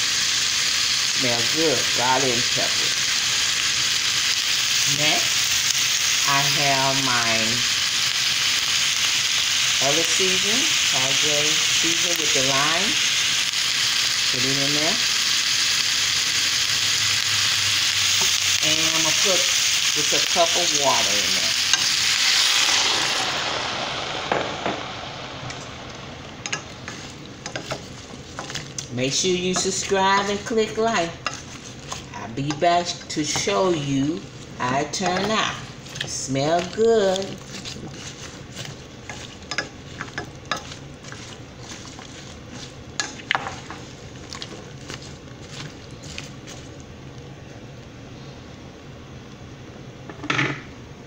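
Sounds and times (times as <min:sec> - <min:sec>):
vegetables sizzling in oil: 0:00.0 - 0:47.4
spoon clinking and scraping pan: 0:26.4 - 0:28.9, 0:31.2 - 0:32.7, 0:35.0 - 0:44.5.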